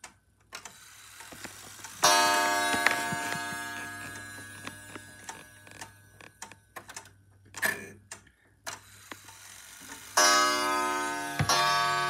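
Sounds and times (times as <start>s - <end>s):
clock movement ticking and clicking: 0.0s - 12.0s
clock chime ringing: 1.9s - 6.4s, 10.1s - 12.0s.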